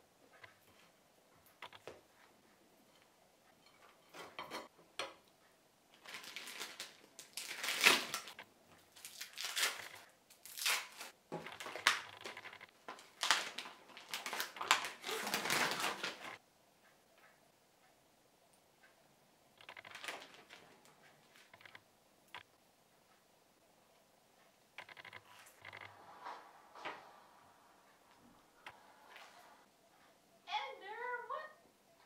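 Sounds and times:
plastic wrappers crinkling: 0:05.9 - 0:16.4, 0:19.8 - 0:21.5.

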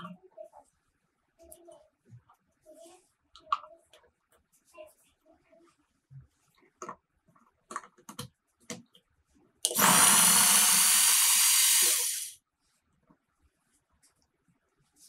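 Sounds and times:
plastic clicks: 0:06.8 - 0:09.0
electric mini chopper running: 0:09.7 - 0:12.4.

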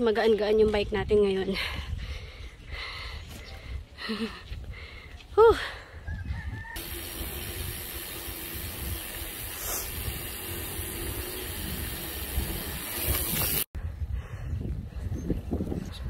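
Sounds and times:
wind rushing on microphone: 0:00.4 - 0:05.0, 0:06.0 - 0:06.8, 0:09.9 - 0:16.0.

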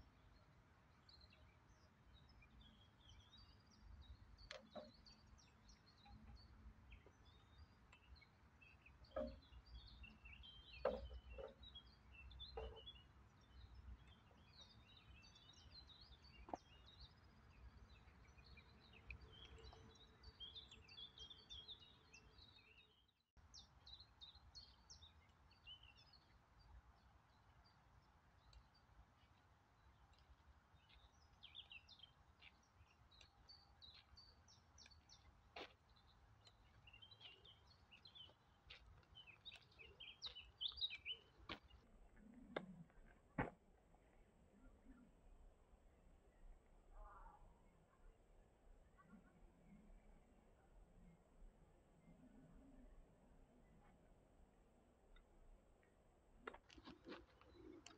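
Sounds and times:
songbirds chirping and singing: 0:00.0 - 0:43.1.

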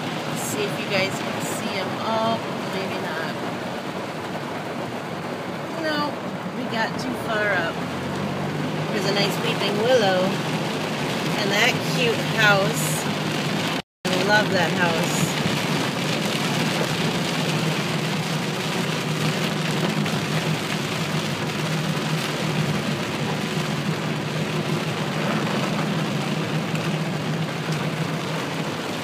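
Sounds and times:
car driving on wet road: 0:00.0 - 0:29.0
heavy rain beating on a car: 0:00.0 - 0:29.0.

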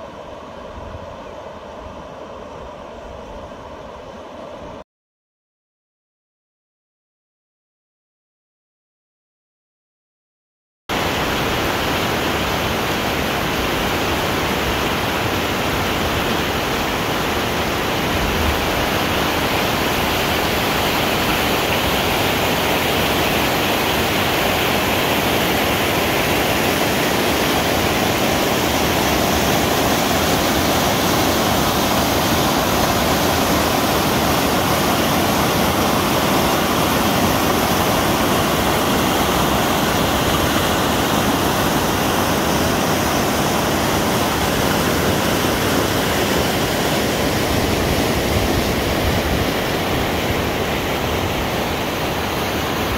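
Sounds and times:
whitewater pouring over a weir: 0:11.0 - 0:52.9.

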